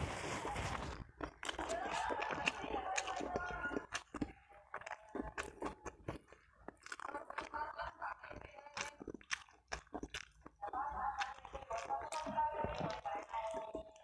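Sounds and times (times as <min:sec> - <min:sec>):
person chewing food: 0:00.0 - 0:14.0
wet clicks and lip smacks: 0:01.2 - 0:07.6, 0:08.2 - 0:14.0.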